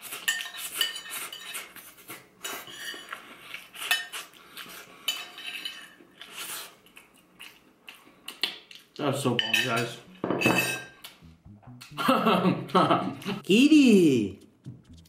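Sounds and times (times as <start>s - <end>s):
spoon scraping a ceramic plate: 0.1s - 4.3s, 5.1s - 6.6s.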